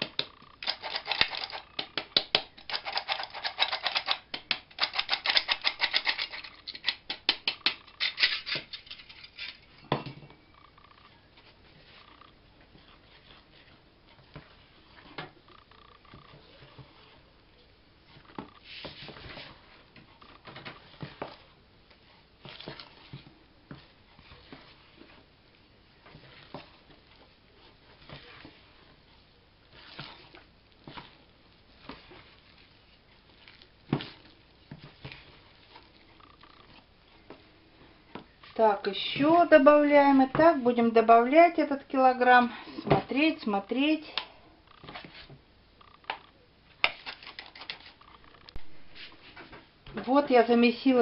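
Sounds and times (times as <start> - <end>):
hand kneading sticky dough: 11.3 - 44.2.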